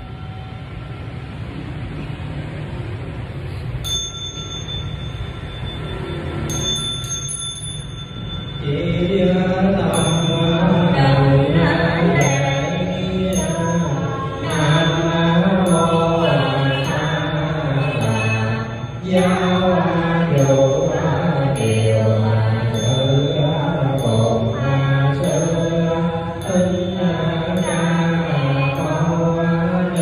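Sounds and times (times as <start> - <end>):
bowl bell ringing: 0.0 - 1.3, 3.7 - 30.0
group chanting in unison: 9.0 - 30.0.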